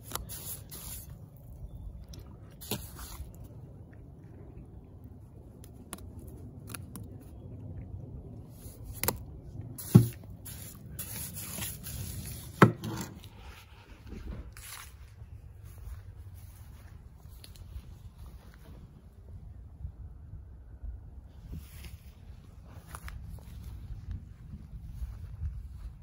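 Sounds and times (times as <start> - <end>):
shovel scraping wet cement: 2.6 - 3.4, 9.8 - 13.4.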